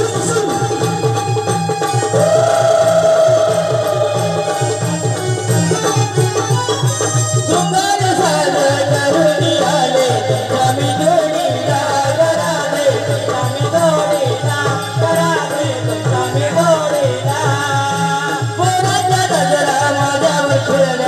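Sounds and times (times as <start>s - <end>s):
hand drum beating: 0.0s - 17.9s
person singing wavering melody: 2.0s - 5.8s.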